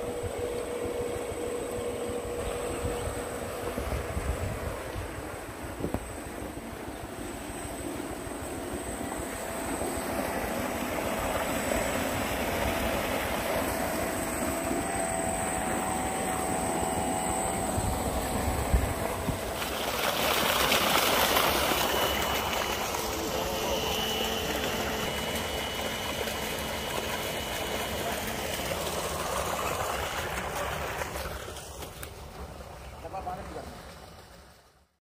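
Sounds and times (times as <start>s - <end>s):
high whine: 0.0s - 31.7s
water pump humming: 0.0s - 34.9s
water gushing into a tank: 18.4s - 34.6s.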